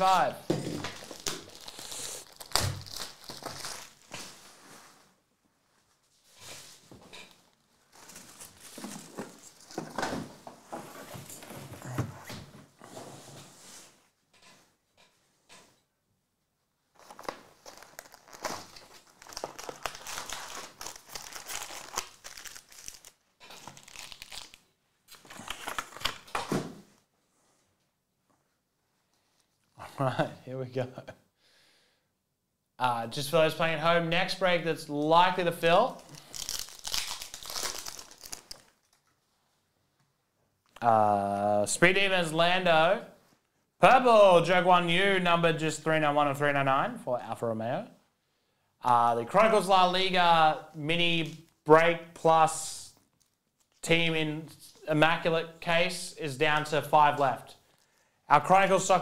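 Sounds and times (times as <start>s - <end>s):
plastic wrap crinkling and tearing: 0.8s - 4.5s, 7.8s - 9.9s, 16.9s - 26.4s, 35.9s - 39.2s.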